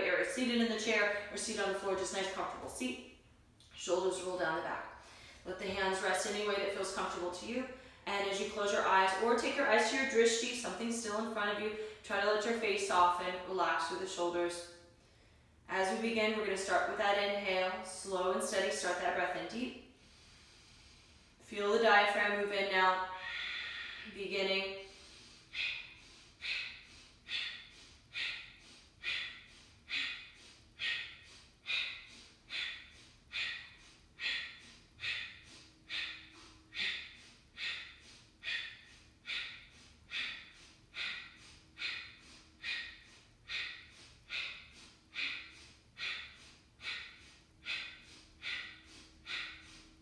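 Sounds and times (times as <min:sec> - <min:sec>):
woman's forceful nasal exhales: 0:23.1 - 0:24.1, 0:24.8 - 0:50.0.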